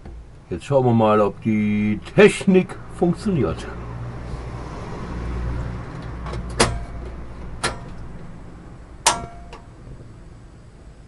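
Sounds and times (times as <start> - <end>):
piezo igniter clicking: 9.0 - 9.7.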